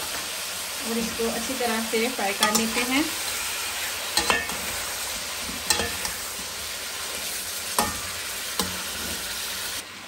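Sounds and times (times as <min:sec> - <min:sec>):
chicken sizzling in hot fat: 0:00.0 - 0:10.0
metal spoon clinking against pan: 0:02.4 - 0:03.0, 0:04.2 - 0:04.7, 0:05.6 - 0:06.2, 0:07.8 - 0:08.8.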